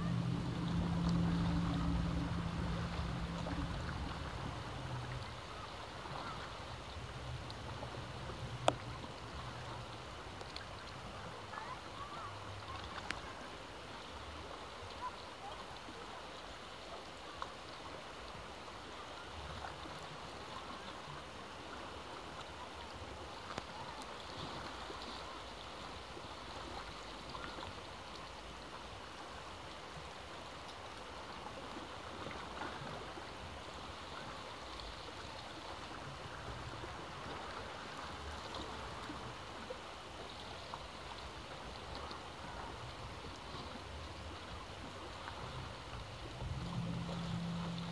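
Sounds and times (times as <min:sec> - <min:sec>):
ocean waves washing on shore: 0:00.0 - 0:47.9
faint ticks: 0:08.6 - 0:09.0.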